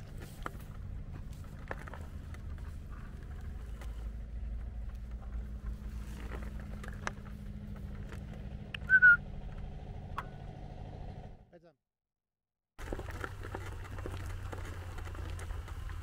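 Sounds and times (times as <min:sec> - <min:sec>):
wheelchair motors humming: 0:00.0 - 0:10.1
wheels rumbling over grass: 0:00.0 - 0:11.4, 0:12.8 - 0:16.0
loud falling whistle: 0:08.8 - 0:09.2.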